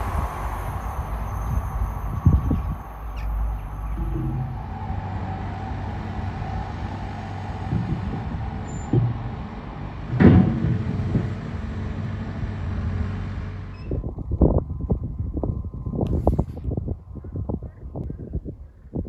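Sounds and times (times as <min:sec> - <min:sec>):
distant vehicle rumble: 0:00.0 - 0:17.2
irregular knocks: 0:03.9 - 0:04.8.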